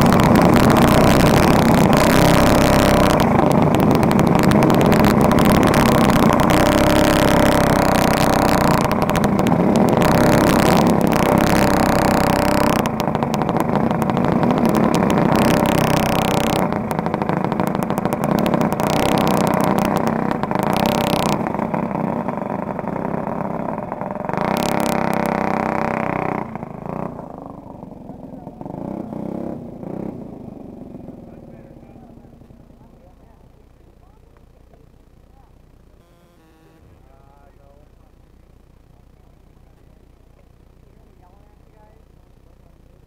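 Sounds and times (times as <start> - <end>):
go-kart engines racing: 0.0 - 33.3.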